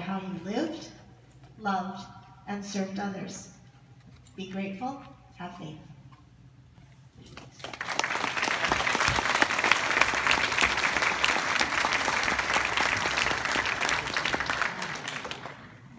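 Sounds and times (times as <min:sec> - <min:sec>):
audience applauding: 0:07.6 - 0:15.9.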